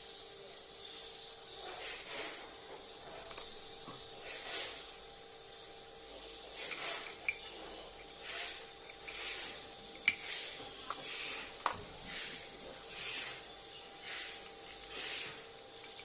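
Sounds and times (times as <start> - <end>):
plastic parts clicking and rubbing: 3.0 - 3.6, 14.3 - 16.0.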